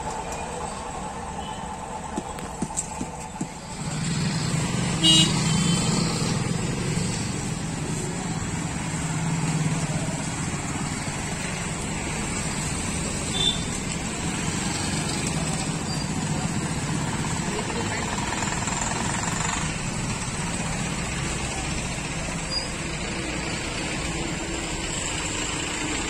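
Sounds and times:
motorcycle engines humming: 0.0 - 26.0
vehicle horn toot: 5.0 - 6.0, 13.3 - 13.7.

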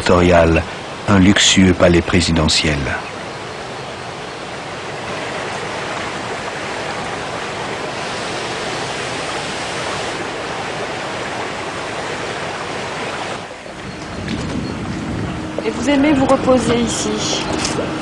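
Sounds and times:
fountain water splashing: 3.6 - 13.8.

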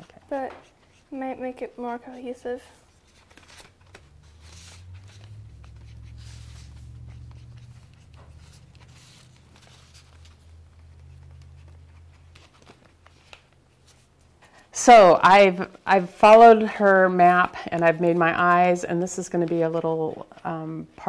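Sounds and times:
marker scratching on paper: 0.0 - 1.6, 4.2 - 13.1
low steady hum: 0.0 - 21.0.

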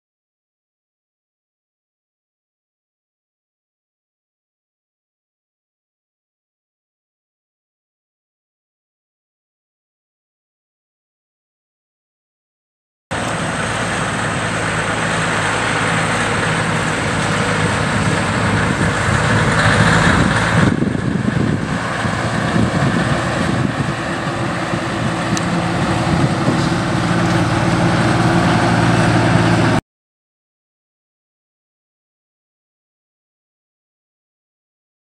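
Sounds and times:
truck diesel engine driving past: 13.1 - 29.8.

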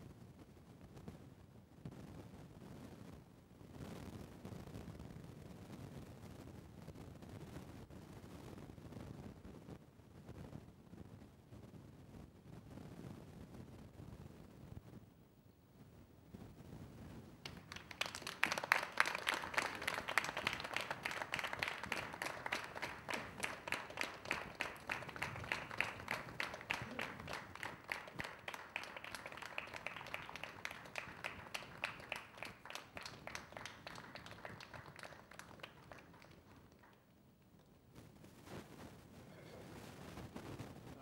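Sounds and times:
small audience applauding: 17.4 - 37.6.

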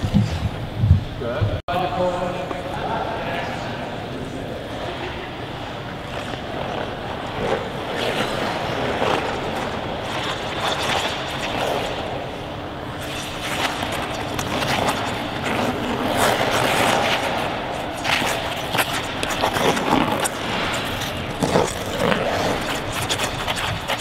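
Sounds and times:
skate blades scraping on ice: 6.1 - 24.0.

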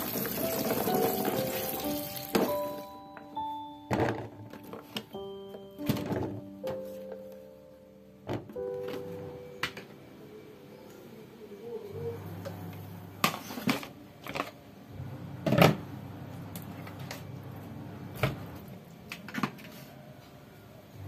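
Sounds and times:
plastic containers clattering: 3.9 - 5.1.

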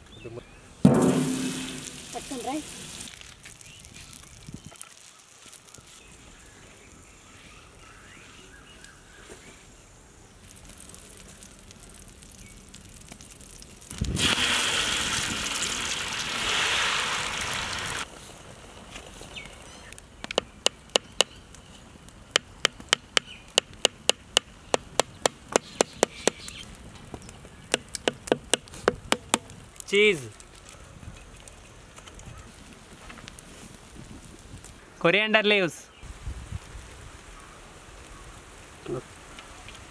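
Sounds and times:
egg mixture sizzling on griddle: 0.9 - 7.2, 9.6 - 19.2.

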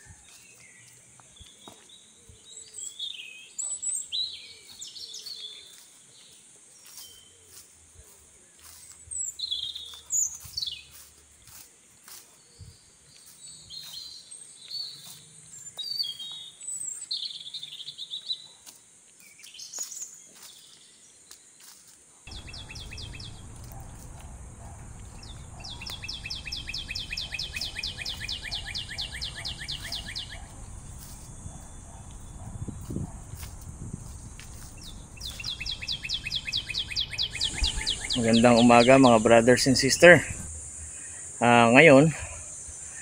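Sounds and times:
birds chirping and whistling: 8.6 - 18.2, 22.3 - 43.0
rapid pulsed trill: 22.3 - 32.5
low steady rumble: 22.3 - 38.2.

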